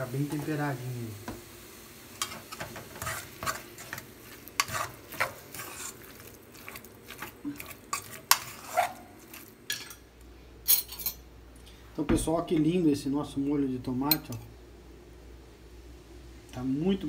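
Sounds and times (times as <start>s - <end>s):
fork scraping a metal pot: 2.2s - 4.0s, 4.6s - 10.0s
potatoes being mashed: 2.5s - 9.6s.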